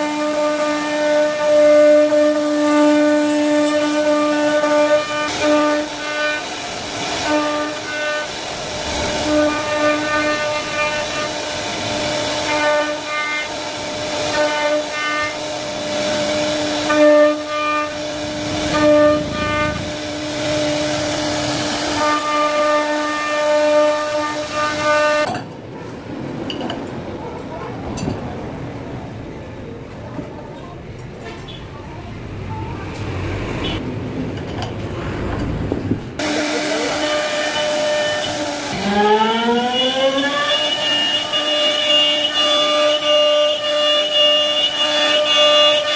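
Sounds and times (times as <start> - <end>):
wood router spindle whining: 36.2 - 45.9.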